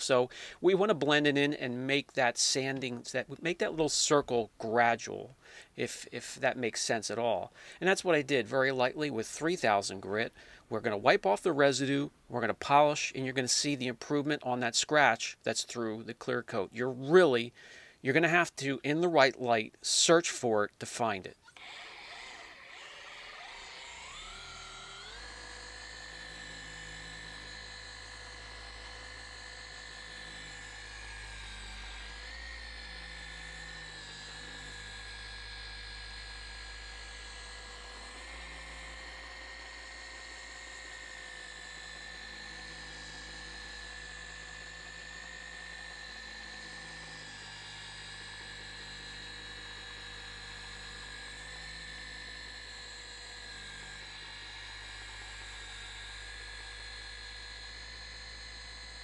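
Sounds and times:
polisher whining: 21.4s - 59.0s.

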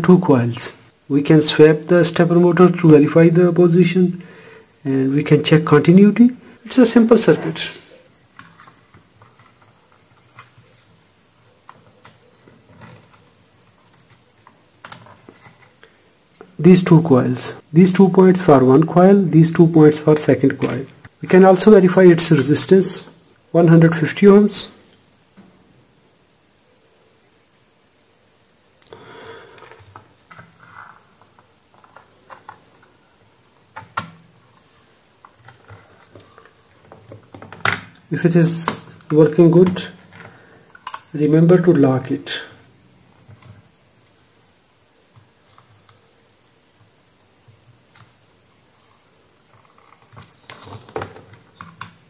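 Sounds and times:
faint low hum: 0.0s - 52.0s.

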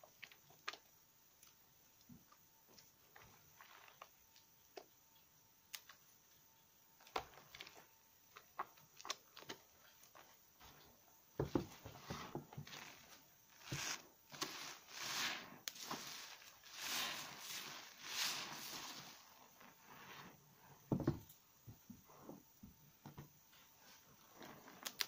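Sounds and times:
foam sponge squeezed: 12.0s - 20.4s
hands lathering soap squelching: 13.8s - 19.2s.

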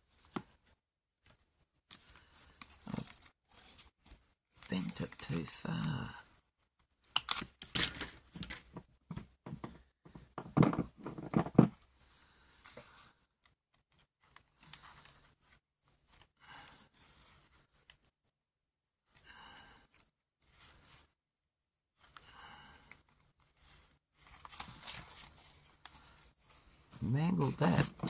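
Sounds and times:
packing paper rustling and crinkling: 23.5s - 28.0s.

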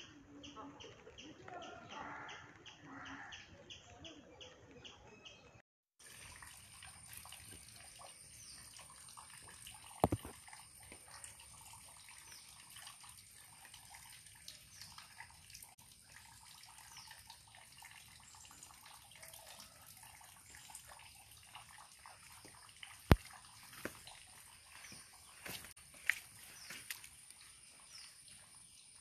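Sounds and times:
water dripping and trickling: 6.0s - 29.0s.

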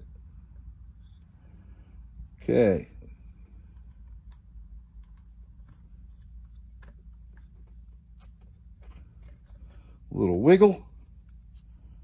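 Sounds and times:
low steady background hum: 0.0s - 12.0s
light metal clicks and scrapes: 3.0s - 12.0s.

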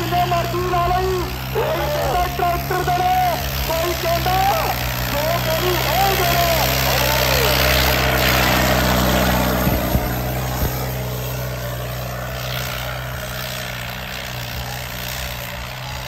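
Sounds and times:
tractor diesel engine under load: 0.0s - 16.0s.

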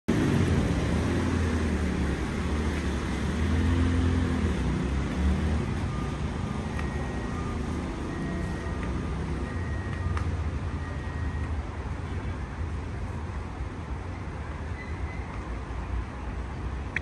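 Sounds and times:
rain and wet tyres hiss: 0.1s - 10.8s
passing vehicles rumble: 0.1s - 17.0s.

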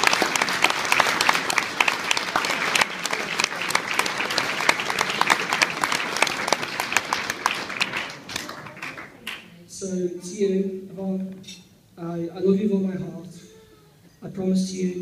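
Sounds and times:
crowd applauding: 0.0s - 9.5s.

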